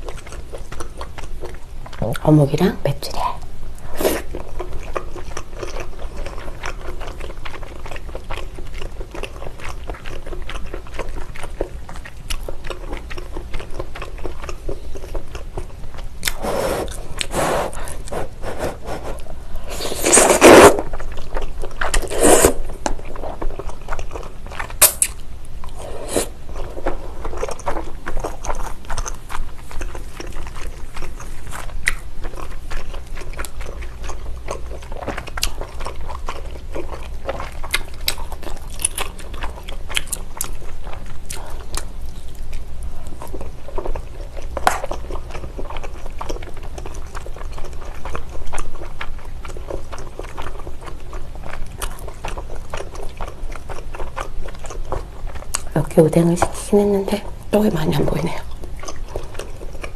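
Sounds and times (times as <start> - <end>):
wet chewing with mouth clicks: 0.0 - 2.3, 3.7 - 59.9
slurping noodles: 16.3 - 20.9, 21.9 - 22.7, 25.8 - 26.4.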